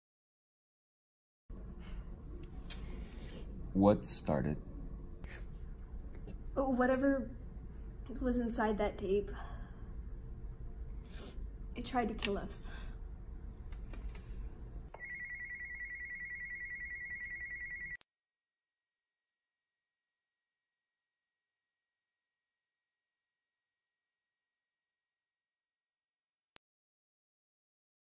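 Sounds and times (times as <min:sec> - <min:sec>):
piercing high-pitched steady tone: 0:15.0 - 0:26.6
rapid trilling beep: 0:15.0 - 0:26.6.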